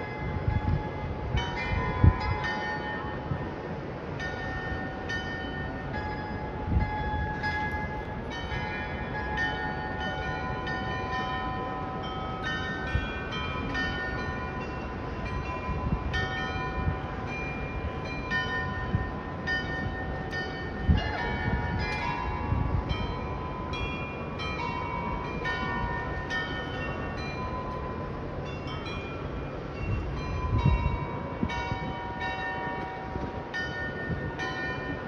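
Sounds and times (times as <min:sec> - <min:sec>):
glockenspiel bells playing a tune: 0:04.2 - 0:35.0.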